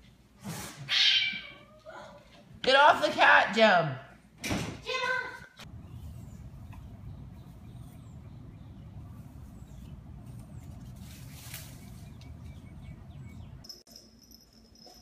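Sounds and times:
bird chirps: 5.7 - 10.8, 11.6 - 13.8
low rumble: 5.7 - 13.7.

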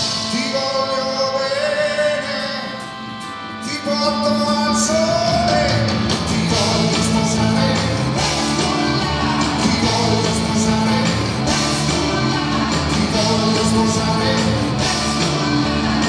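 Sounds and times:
live rock band: 0.0 - 16.0
man singing: 0.0 - 16.0
bass line: 3.8 - 16.0.

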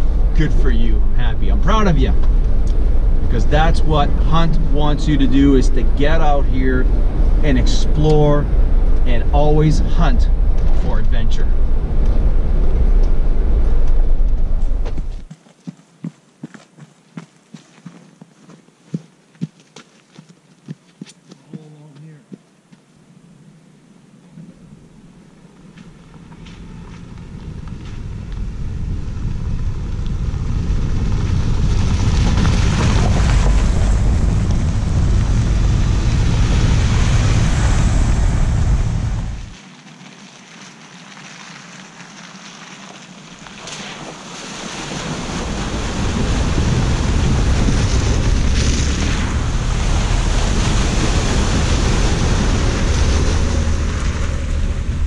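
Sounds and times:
wind buffeting microphone: 0.0 - 15.3, 25.9 - 39.6, 44.9 - 55.0
off-road vehicles driving on gravel: 0.0 - 22.8, 24.5 - 55.0.

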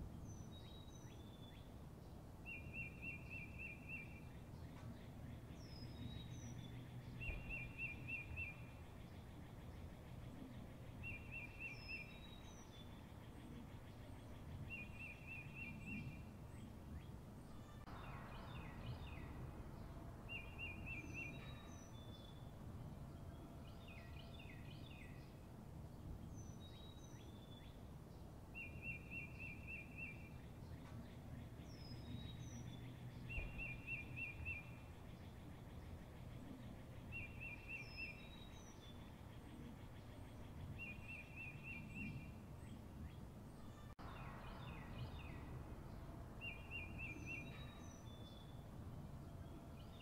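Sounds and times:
low steady rumble: 15.8 - 26.6, 42.2 - 50.0.

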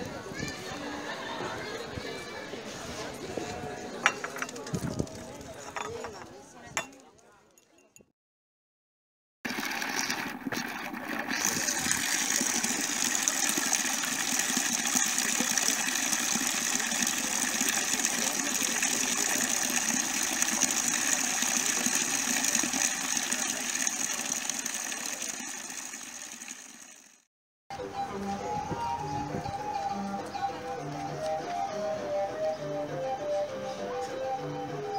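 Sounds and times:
water cascading down stone steps: 11.3 - 26.9.

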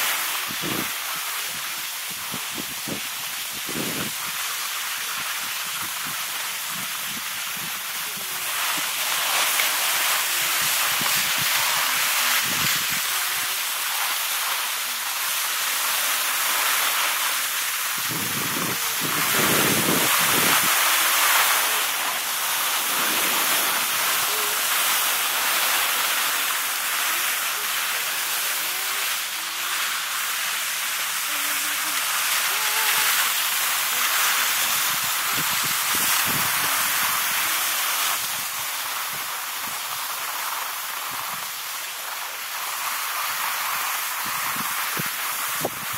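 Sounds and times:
skis sliding over snow: 0.0 - 45.9
wind on microphone: 0.4 - 4.4, 10.5 - 13.1, 17.9 - 25.1, 34.2 - 37.5, 44.2 - 45.9.

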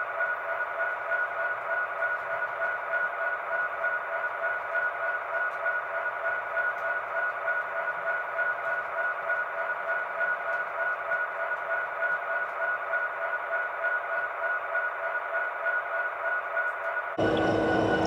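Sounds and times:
model train diesel idle hum: 17.2 - 18.0.

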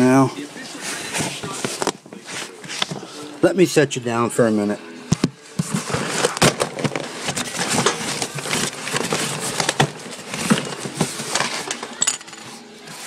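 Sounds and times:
paper and plastic crinkling: 0.6 - 3.3, 5.5 - 13.0.

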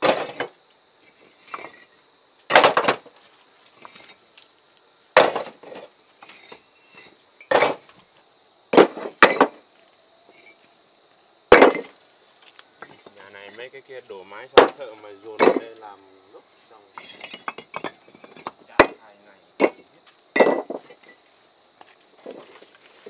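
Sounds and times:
faint high hiss: 9.6 - 23.0.

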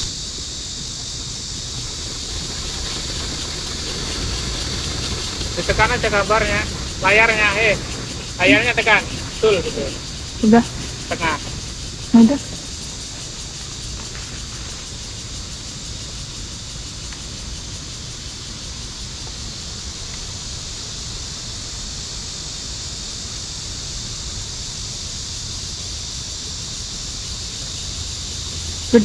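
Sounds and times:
wind rumble on microphone: 0.0 - 29.0
river water rushing: 2.7 - 12.8.

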